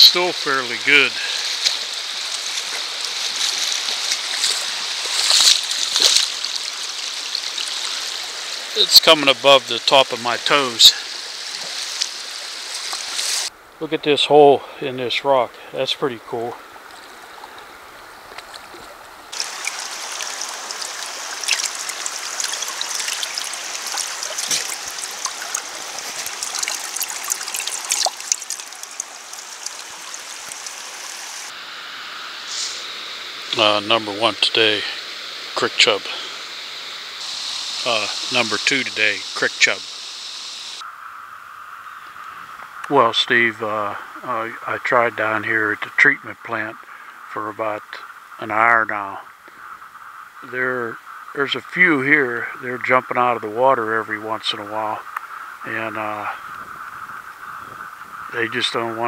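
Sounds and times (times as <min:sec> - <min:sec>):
creek water flowing over rocks: 0:00.0 - 0:13.7, 0:15.3 - 0:40.8
boots splashing through water: 0:01.2 - 0:07.8, 0:18.3 - 0:31.5.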